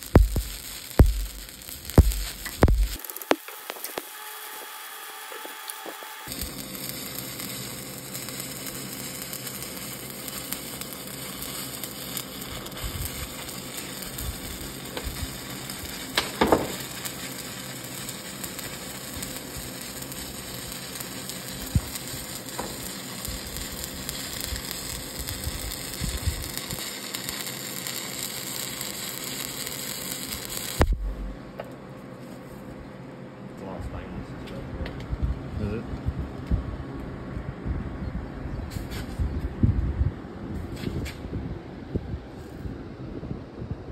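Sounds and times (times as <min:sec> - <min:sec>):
welding arc crackling and sizzling: 0:00.0 - 0:31.4
welding arc pops: 0:00.0 - 0:31.4
background hum: 0:00.0 - 0:43.9.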